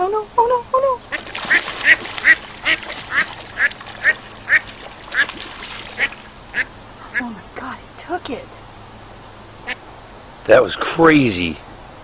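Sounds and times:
water splashing: 0:01.0 - 0:07.6.

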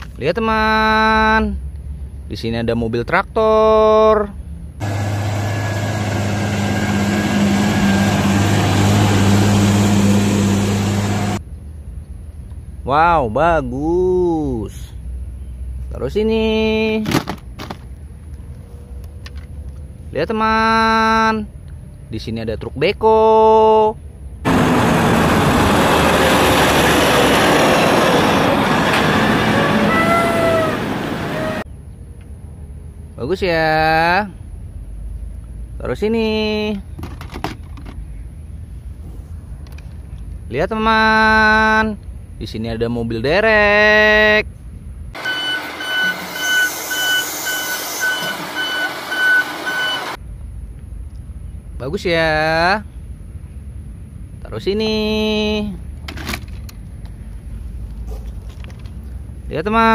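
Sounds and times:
tractor diesel engine running: 0:04.8 - 0:11.4, 0:24.5 - 0:31.6, 0:45.2 - 0:50.2
tyre noise on road: 0:24.4 - 0:31.7.

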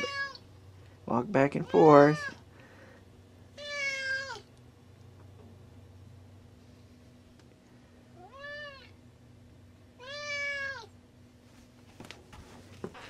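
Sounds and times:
cat meowing: 0:00.0 - 0:00.4, 0:01.7 - 0:02.4, 0:03.6 - 0:04.5, 0:08.2 - 0:09.0, 0:10.0 - 0:10.9.

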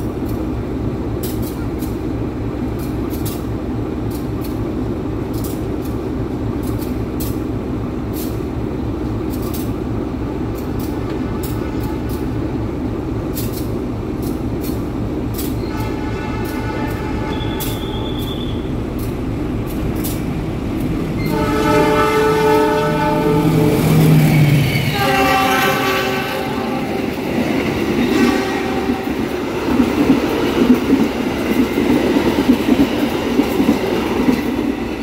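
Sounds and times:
locomotive idling rumble: 0:00.0 - 0:27.8.

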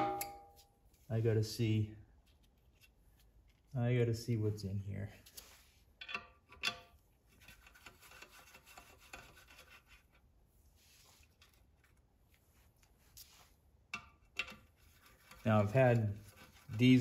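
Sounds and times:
metal rubbing: 0:14.3 - 0:17.0.

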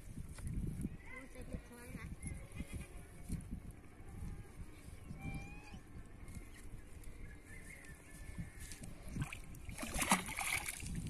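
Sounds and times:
stick splashing into water: 0:09.2 - 0:11.0.

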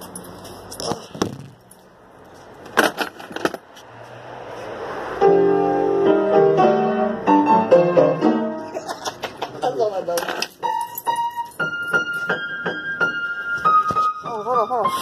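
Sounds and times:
piano playing chords and notes: 0:05.1 - 0:09.0, 0:10.6 - 0:15.0.

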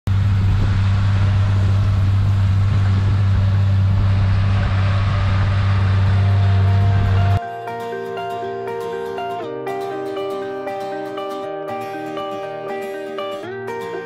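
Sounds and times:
tractor engine humming: 0:00.0 - 0:07.4.

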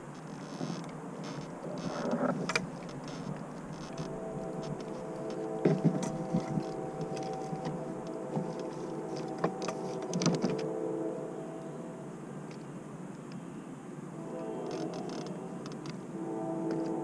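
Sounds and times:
boat motor hum: 0:00.0 - 0:11.9.

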